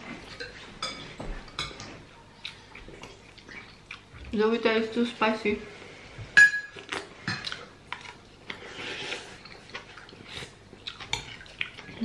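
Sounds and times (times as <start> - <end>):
person chewing: 1.8 - 4.3, 6.7 - 12.0.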